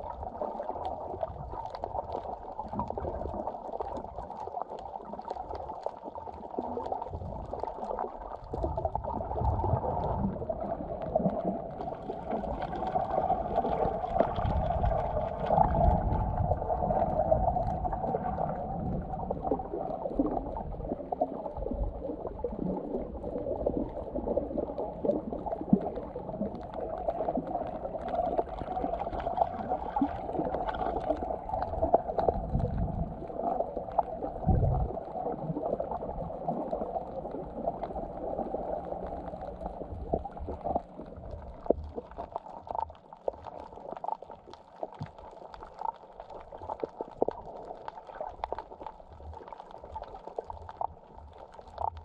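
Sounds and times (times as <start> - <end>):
water gurgling underwater: 0.0 - 52.0
faint crackling: 0.1 - 52.0
low rumble: 34.3 - 35.1.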